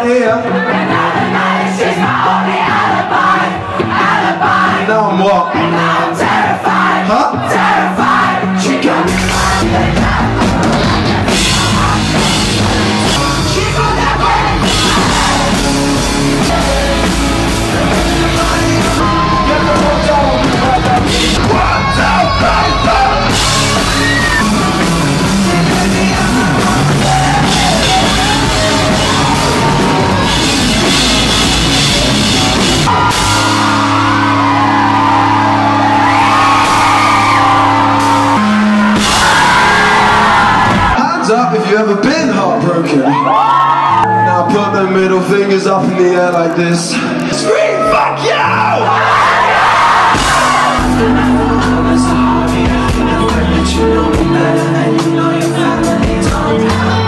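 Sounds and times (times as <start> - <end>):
drums: 0.0 - 46.1, 47.0 - 57.0
rock band playing live: 0.0 - 57.0
singer yelling: 13.0 - 31.1, 46.6 - 53.3.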